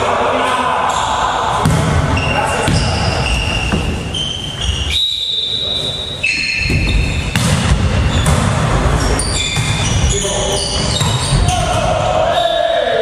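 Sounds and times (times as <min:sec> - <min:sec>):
volleyball being struck: 0:01.6 - 0:03.0, 0:06.7 - 0:08.9
shoe squeaks on wooden floor: 0:02.2 - 0:11.6
players calling out: 0:08.0 - 0:13.0.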